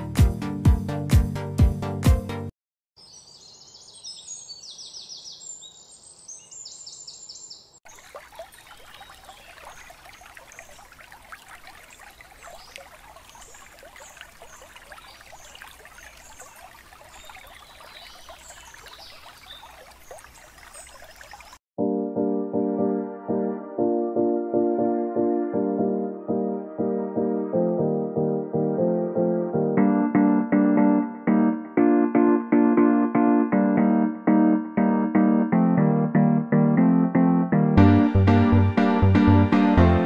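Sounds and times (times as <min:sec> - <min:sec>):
birds chirping: 0:03.0 - 0:21.6.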